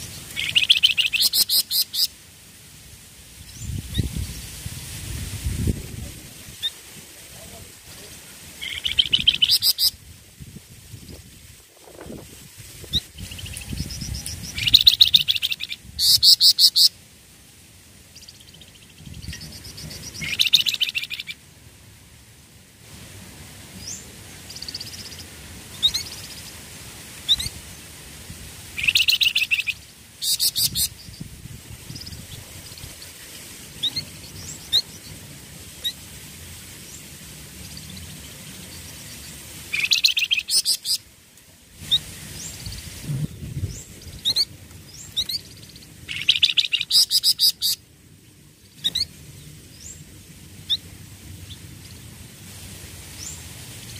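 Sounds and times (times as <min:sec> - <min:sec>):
bird chirps: 0:00.0 - 0:02.1, 0:08.6 - 0:10.0, 0:18.2 - 0:21.4, 0:28.8 - 0:31.3, 0:38.7 - 0:41.0, 0:43.6 - 0:47.8
songbird trilling: 0:00.0 - 0:02.1, 0:08.6 - 0:10.0, 0:12.9 - 0:16.9, 0:18.2 - 0:21.4, 0:28.8 - 0:31.2, 0:39.7 - 0:41.0, 0:43.6 - 0:47.8.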